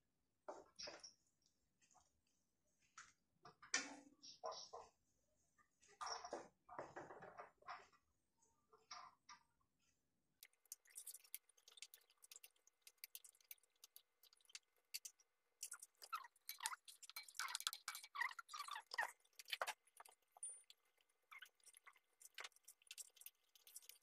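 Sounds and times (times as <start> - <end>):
simmering sauce popping: 10.4 - 24.0.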